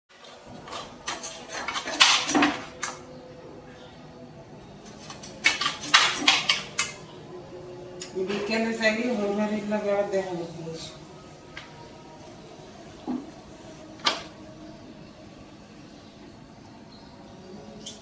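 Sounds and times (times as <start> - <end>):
knife scraping a steel plate: 0.6 - 2.7.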